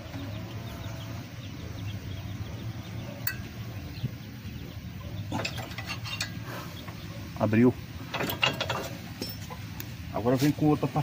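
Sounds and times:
low steady hum: 0.0s - 11.0s
metal tool clinking and scraping: 3.2s - 3.5s, 5.3s - 6.5s, 8.1s - 9.6s.

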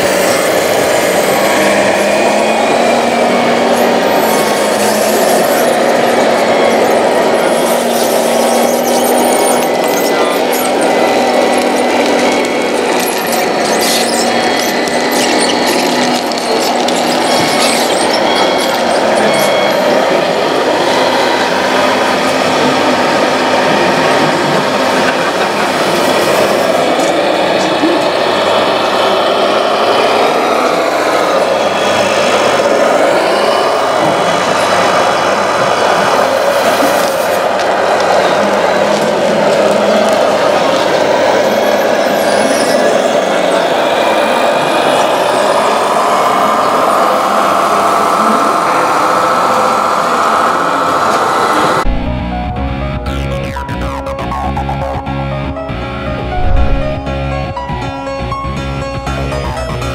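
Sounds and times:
toy truck motor whirring: 2.7s - 19.8s.

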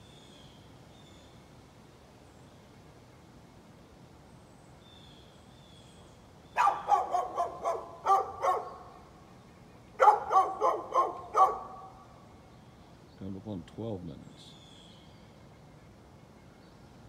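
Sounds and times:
dog barking: 6.6s - 8.8s, 10.0s - 11.9s.

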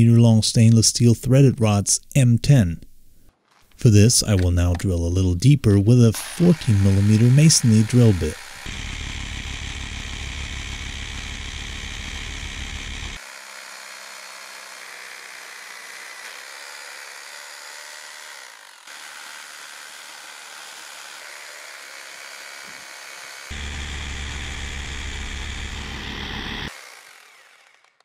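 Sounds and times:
power drill boring into brick: 6.2s - 28.0s.

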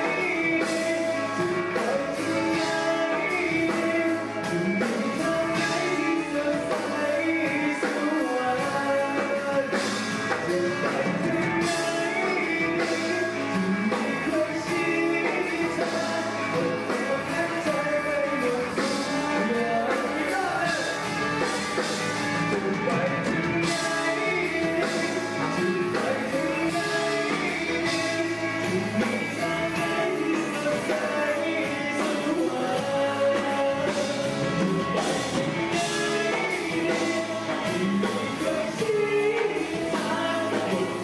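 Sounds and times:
live rock band playing: 0.0s - 41.0s
man singing: 0.0s - 41.0s.

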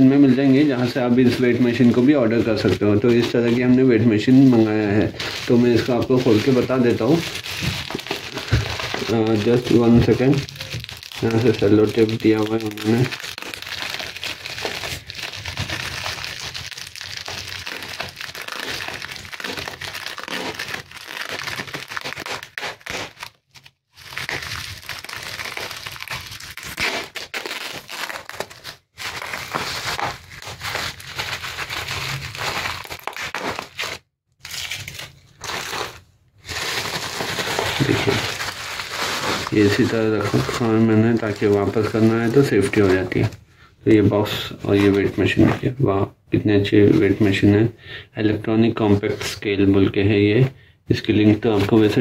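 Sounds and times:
bubble wrap crinkling: 0.0s - 45.8s, 51.1s - 52.0s
sticky tape peeling: 17.6s - 35.1s.

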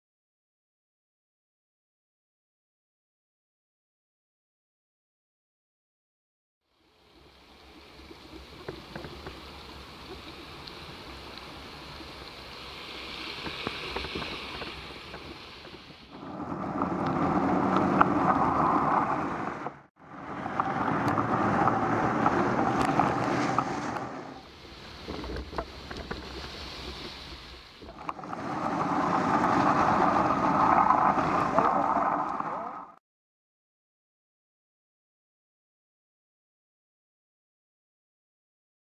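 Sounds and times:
wind on microphone: 13.4s - 32.7s
city traffic on wet street: 16.2s - 24.4s.

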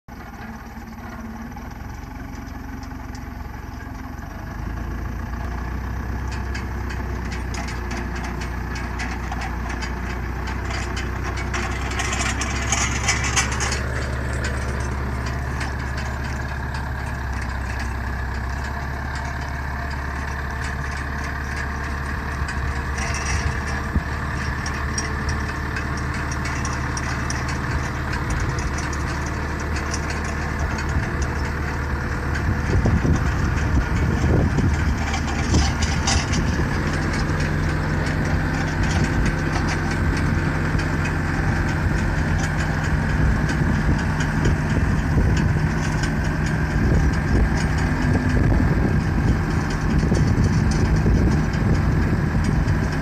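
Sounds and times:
diesel engine running: 0.0s - 53.0s.

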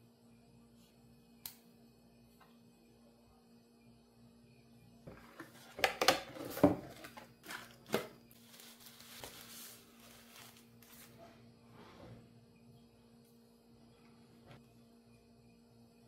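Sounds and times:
plastic wrapping rustling: 6.6s - 11.2s.

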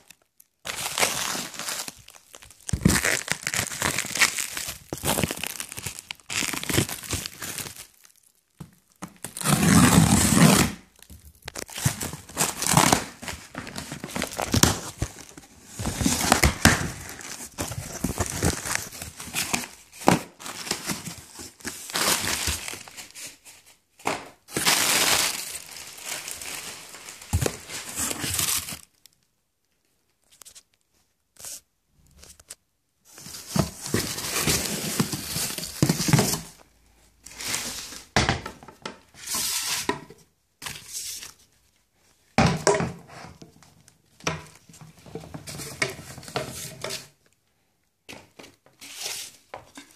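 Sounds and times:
plastic wrap crinkling and tearing: 0.0s - 23.6s, 24.5s - 29.2s, 31.4s - 36.6s.

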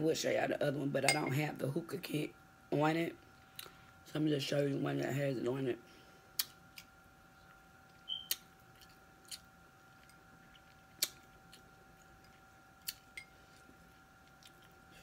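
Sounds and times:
faint steady hum: 0.0s - 15.0s
faint chewing: 6.4s - 15.0s.

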